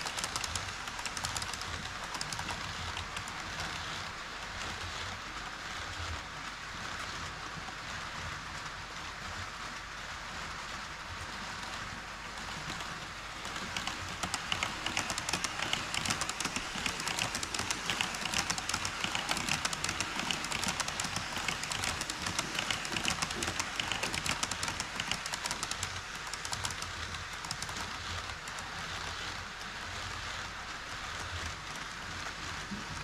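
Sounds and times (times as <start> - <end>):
model train wheels clattering: 0.0 - 4.8, 11.6 - 33.0.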